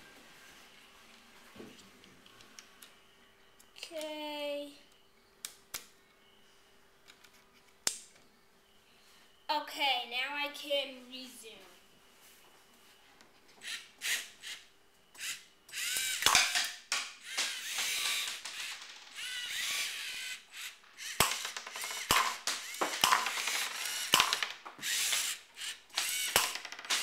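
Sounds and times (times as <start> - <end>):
servo motors whining: 15.2 - 16.3, 17.2 - 26.5.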